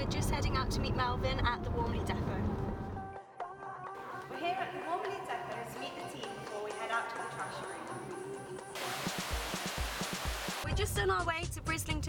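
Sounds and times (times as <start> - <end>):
water rushing through screen: 8.8 - 10.7.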